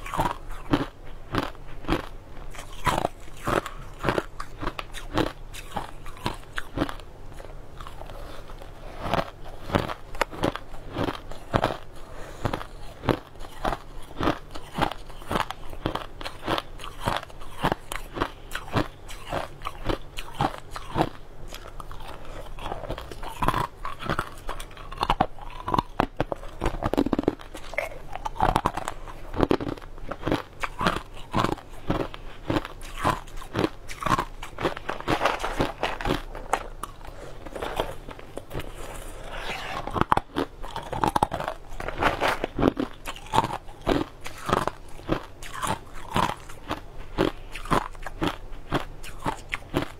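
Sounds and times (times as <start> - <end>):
crushed ice being chewed: 0.0 - 49.9.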